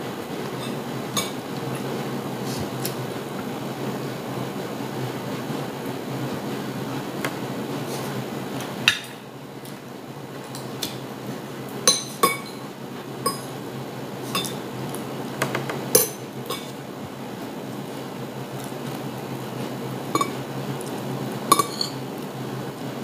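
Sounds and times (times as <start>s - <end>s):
low background hum: 0.0s - 23.0s
cutlery clinking on plate: 0.6s - 1.4s, 20.2s - 20.4s, 21.5s - 22.0s.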